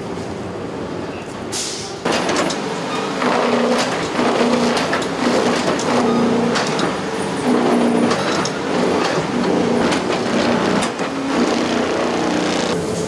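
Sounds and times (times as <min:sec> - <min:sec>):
machines running: 0:02.0 - 0:13.0.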